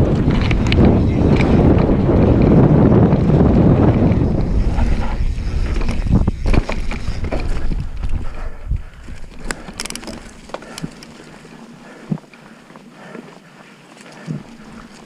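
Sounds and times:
bike knocks and rattles: 0.0s - 8.4s, 9.0s - 11.4s
wind buffeting microphone: 0.0s - 12.2s
tyres rolling on dirt: 0.0s - 15.0s.

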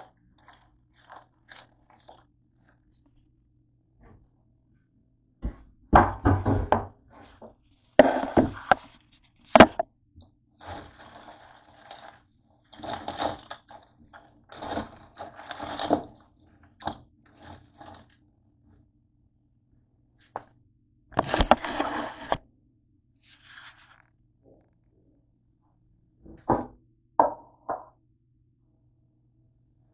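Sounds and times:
bowl scraping on countertop: 7.1s - 9.8s, 10.6s - 16.2s, 21.2s - 22.4s, 23.2s - 24.1s
snacks rustling: 23.3s - 24.1s.

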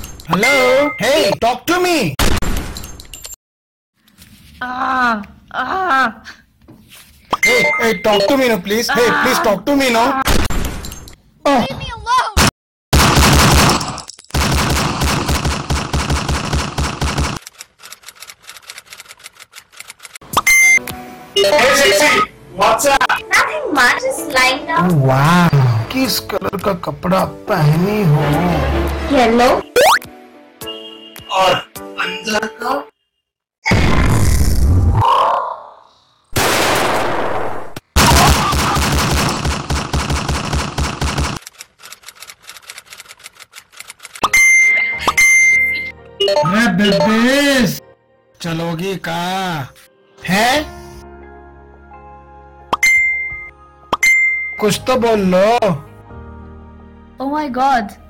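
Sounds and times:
machine-gun burst: 13.0s - 17.4s, 38.0s - 41.4s
faint rapid clicking: 17.4s - 20.2s, 41.4s - 44.2s.

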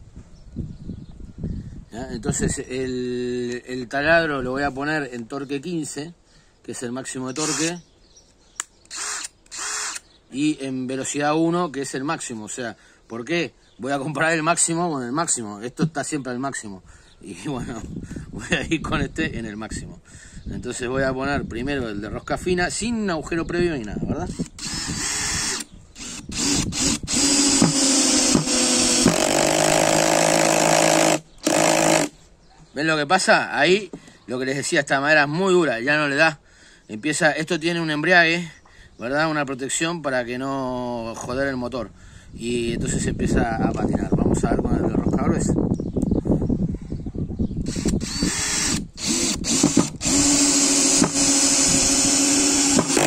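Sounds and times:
cordless drill driving screw: 7.3s - 7.8s, 8.6s - 10.1s, 24.3s - 32.1s, 47.6s - 53.0s
drill clutch slipping: 7.4s - 7.7s, 8.8s - 10.0s, 24.3s - 32.1s, 47.7s - 53.0s.

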